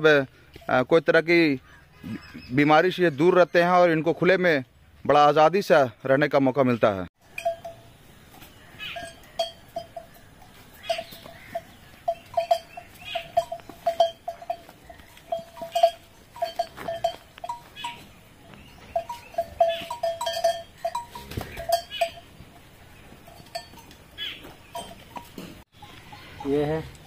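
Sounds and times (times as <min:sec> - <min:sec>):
cow bell clinking: 0:07.2 - 0:27.0.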